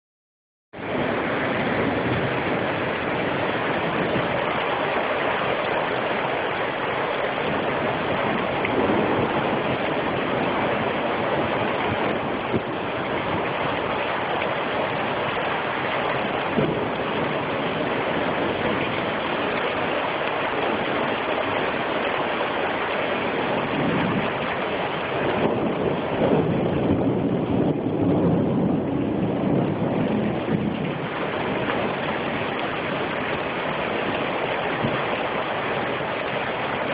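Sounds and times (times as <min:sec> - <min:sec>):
heavy rain hissing: 0:00.8 - 0:36.9.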